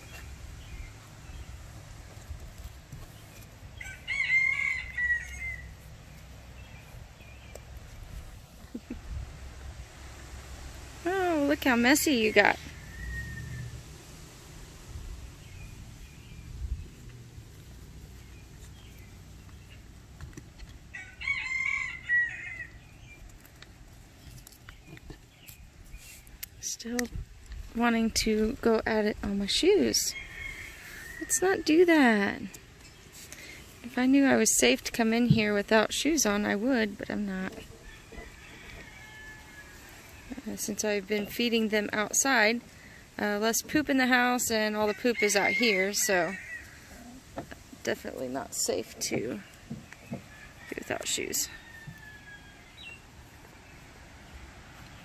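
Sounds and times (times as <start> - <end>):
rooster crowing: 3.8 - 5.7, 12.4 - 13.8, 20.9 - 22.8, 30.1 - 31.4, 37.8 - 40.3, 44.9 - 47.1, 50.2 - 52.8.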